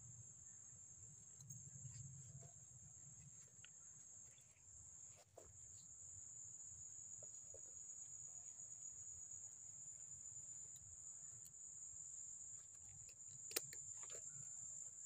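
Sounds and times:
faint ticks: 1.2s - 6.0s, 10.5s - 11.7s.

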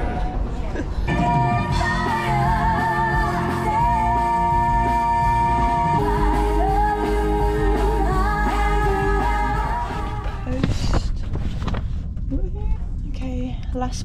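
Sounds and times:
live band playing: 1.1s - 10.3s
singer with vibrato: 1.1s - 10.5s
steady bass: 1.1s - 10.6s.

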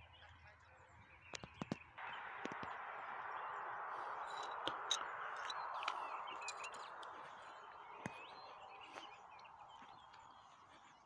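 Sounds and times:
songbirds chirping and warbling: 0.0s - 11.0s
sharp clicks: 1.3s - 2.8s
steady rushing noise: 2.0s - 10.4s.

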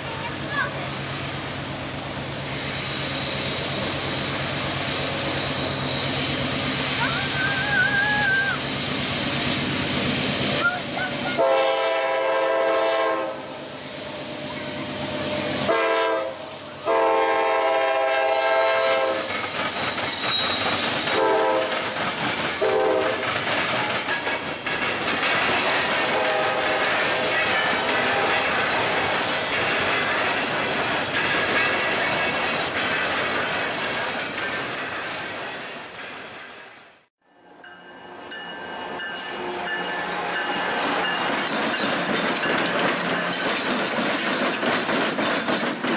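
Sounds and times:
train engine: 0.0s - 45.9s
train horn blasts: 11.3s - 13.6s, 15.6s - 19.3s, 21.1s - 21.8s, 22.6s - 23.2s, 26.0s - 28.6s
train wheels clicking over rail joints: 18.7s - 37.0s, 39.0s - 45.9s.

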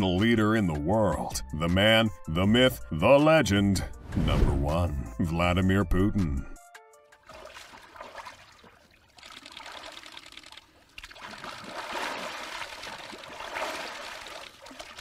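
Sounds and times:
water splashing and streaming: 7.2s - 15.0s.

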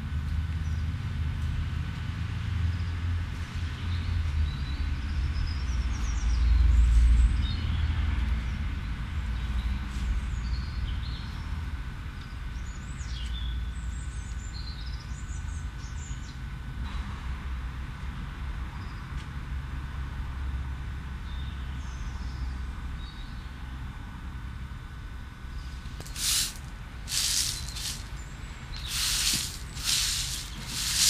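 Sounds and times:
small birds chirping: 25.6s - 31.0s.

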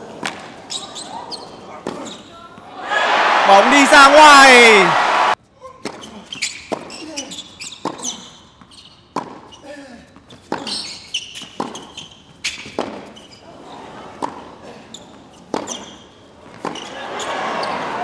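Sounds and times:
crowd cheering: 2.7s - 5.4s, 16.9s - 18.0s
players shouting: 2.7s - 5.4s, 17.0s - 18.0s
tennis ball bouncing: 9.1s - 9.5s, 11.4s - 12.0s, 12.6s - 13.1s, 15.5s - 15.9s.

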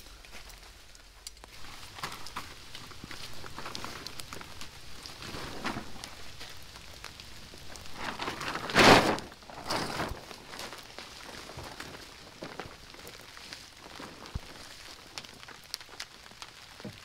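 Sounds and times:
plastic tarp crinkling: 0.0s - 17.0s
tarp shaken with whoosh: 1.6s - 15.4s.

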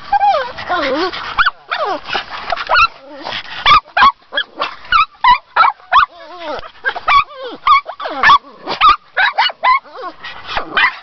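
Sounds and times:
dog yipping and whining: 2.7s - 11.0s.

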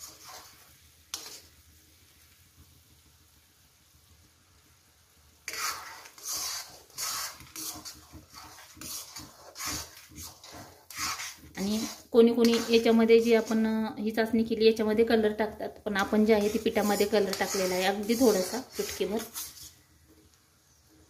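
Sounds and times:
spoon scraping pan while stirring: 0.0s - 2.7s, 5.4s - 21.0s
syrup bubbling: 4.2s - 14.0s, 15.7s - 21.0s.

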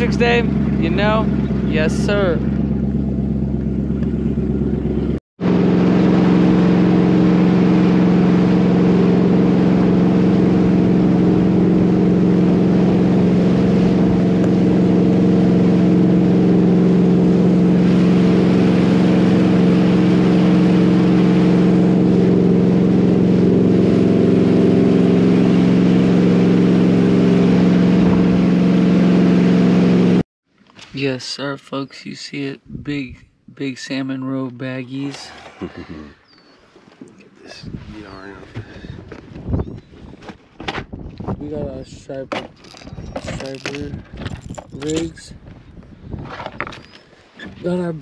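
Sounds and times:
motorboat engine humming: 0.0s - 30.2s, 31.4s - 48.0s
wind: 0.0s - 48.0s
rushing water: 5.6s - 29.9s.

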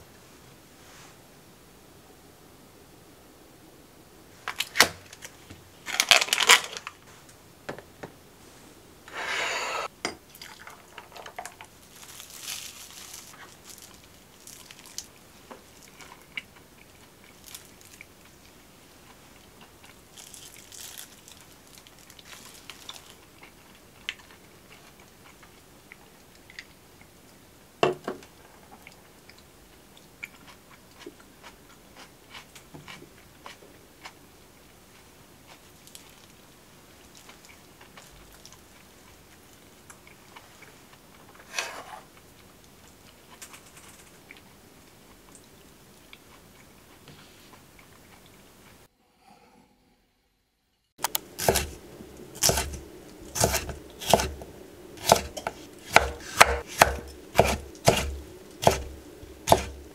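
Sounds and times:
food packaging crinkling: 4.5s - 7.1s, 10.5s - 18.5s, 19.4s - 25.4s, 35.7s - 36.4s, 52.4s - 59.9s
paper wrapping crinkles: 4.5s - 7.1s, 11.5s - 15.1s, 17.3s - 18.1s, 20.1s - 23.3s
crunchy bites and chewing: 51.0s - 51.8s, 52.4s - 59.9s.

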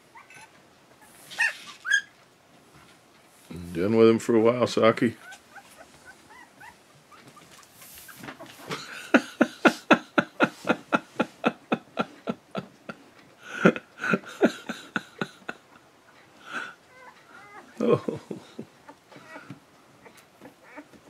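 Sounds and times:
puppies yelping: 0.1s - 2.2s, 5.2s - 7.8s, 16.5s - 17.8s, 18.8s - 21.0s.

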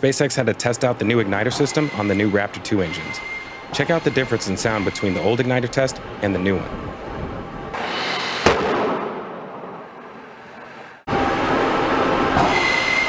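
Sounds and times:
rumble: 6.0s - 12.5s
igniter bang: 6.7s - 9.8s.

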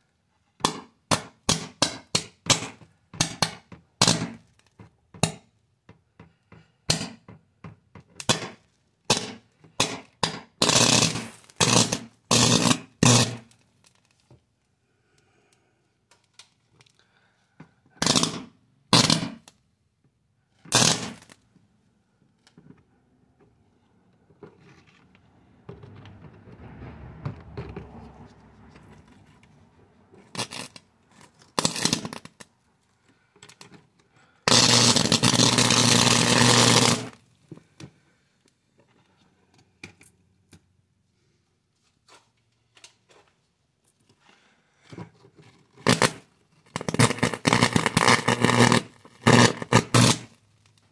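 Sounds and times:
electric arcing bursts: 10.6s - 13.4s, 20.7s - 21.3s, 34.5s - 37.2s, 45.8s - 46.2s, 46.8s - 50.3s.

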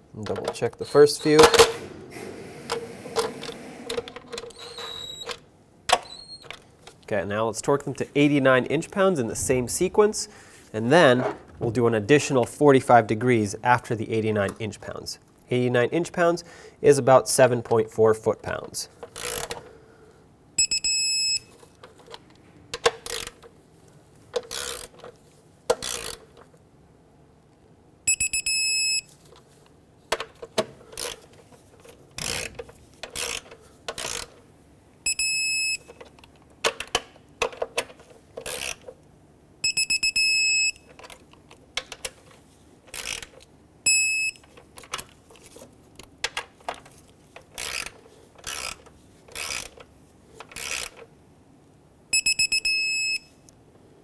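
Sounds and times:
torque wrench ratcheting: 19.2s - 19.5s, 24.5s - 24.9s, 25.8s - 26.2s, 32.2s - 34.3s, 38.4s - 38.9s, 42.9s - 43.3s, 47.6s - 49.8s, 50.5s - 51.0s
high-pitched beeps: 20.6s - 21.4s, 28.1s - 29.0s, 39.6s - 40.8s, 52.2s - 53.2s.

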